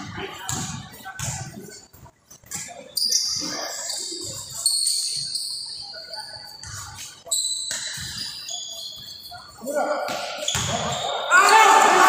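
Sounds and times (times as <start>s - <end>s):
basketball shoes squeaking: 0.0s - 11.3s
basketball bouncing: 10.1s - 10.8s.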